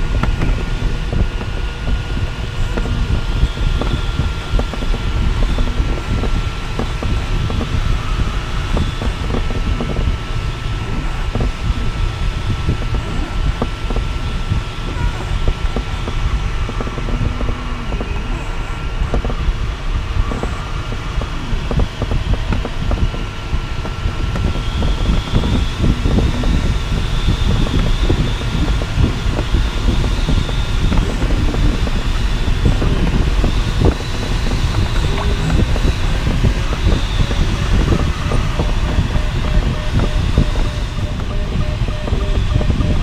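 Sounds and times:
air rushing over glider: 0.0 - 43.0
low buffeting rumble: 0.0 - 43.0
faint steady high tone: 34.8 - 43.0.

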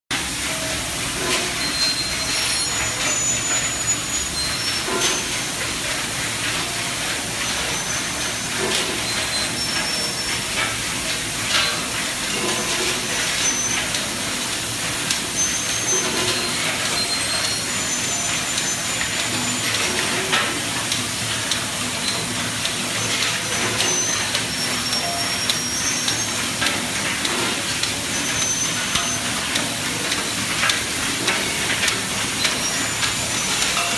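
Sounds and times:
machine clattering: 0.2 - 33.9
short high squeaks: 1.5 - 5.4, 23.0 - 26.4, 28.1 - 29.3.

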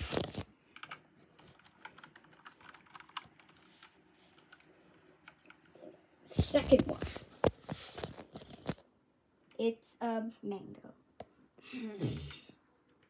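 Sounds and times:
hands handling phone and cards: 6.4 - 8.8.

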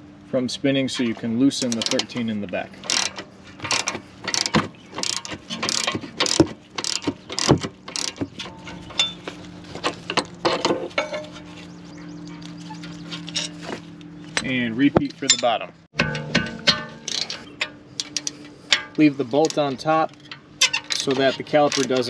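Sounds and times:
ratchet clicking: 1.6 - 2.2, 2.8 - 8.2, 18.0 - 18.4, 19.4 - 22.0.

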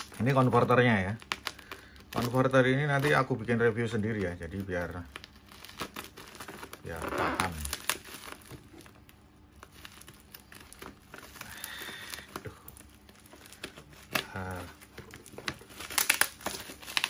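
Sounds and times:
plastic packaging crinkling: 0.0 - 17.0.

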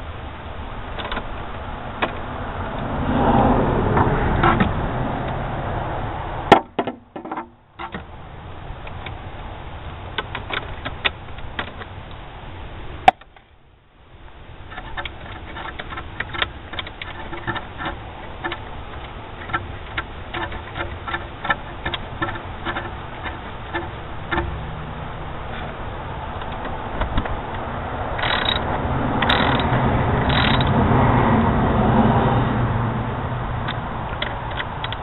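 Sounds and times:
socket ratchet clicking: 28.2 - 30.8.

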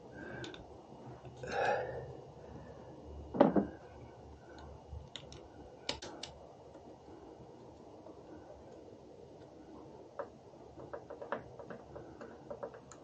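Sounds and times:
small clicks of hardware: 4.5 - 6.4.

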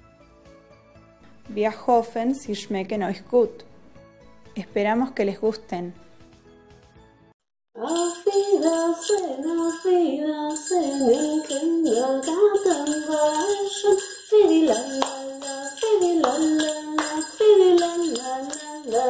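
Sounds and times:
jingle bells shaking: 7.8 - 19.0.

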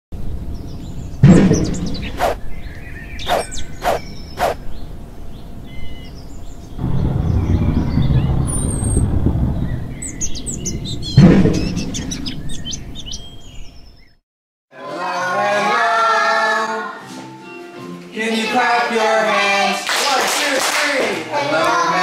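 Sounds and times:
birdsong chirps: 0.4 - 14.2
loud thud: 1.2 - 2.3, 11.2 - 12.0
low rumble: 4.2 - 13.2
sharp knocks: 11.2 - 11.8.

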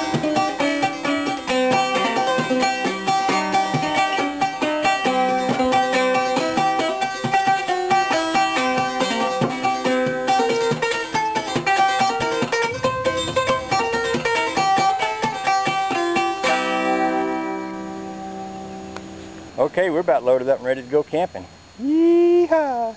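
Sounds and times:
banjo plucked clawhammer style: 0.0 - 17.6.

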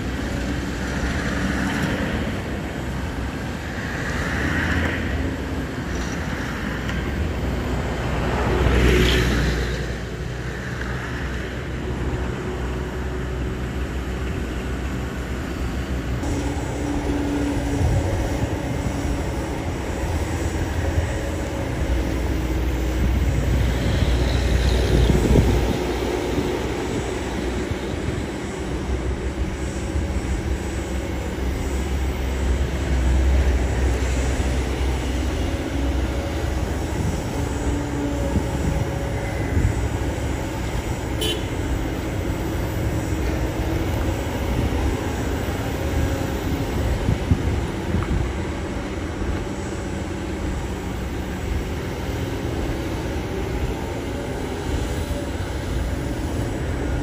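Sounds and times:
excavator diesel engine running: 0.0 - 57.0
hydraulics working: 10.1 - 57.0.

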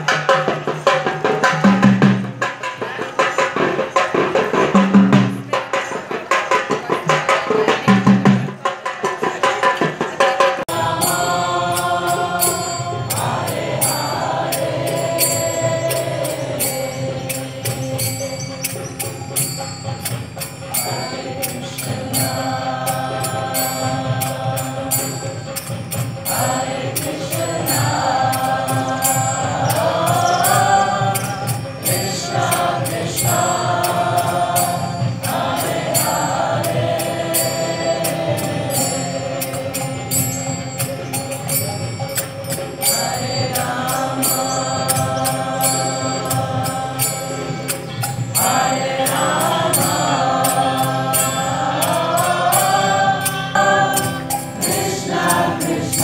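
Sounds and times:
clicking percussion beat: 0.0 - 56.0
person singing a chant: 10.7 - 19.4, 20.4 - 41.8, 42.8 - 56.0.

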